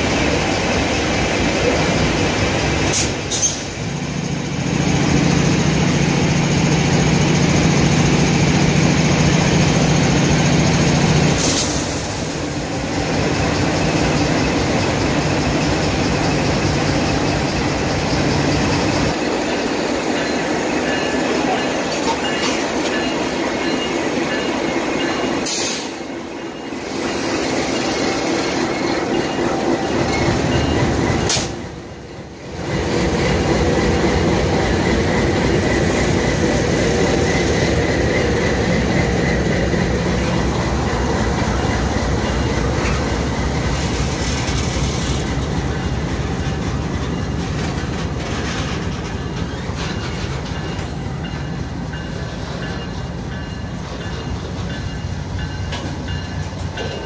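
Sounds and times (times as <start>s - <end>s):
diesel locomotives running: 0.0s - 57.0s
steel wheels squealing: 2.9s - 3.8s, 13.4s - 31.5s, 48.4s - 51.4s.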